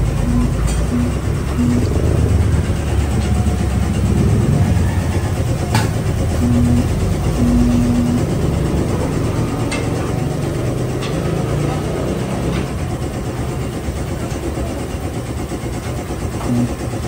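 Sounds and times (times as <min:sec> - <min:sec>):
short tones: 0:00.0 - 0:09.5
engine and road rumble: 0:00.0 - 0:14.5.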